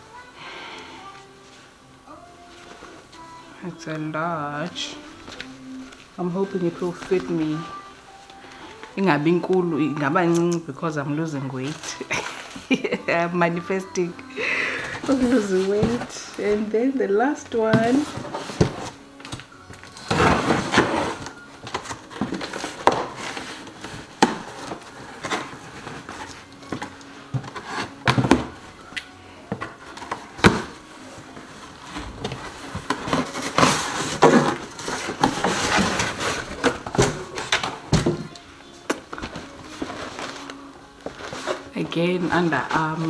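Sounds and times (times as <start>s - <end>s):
parcel wrapping rustling: 1.1s - 43.0s.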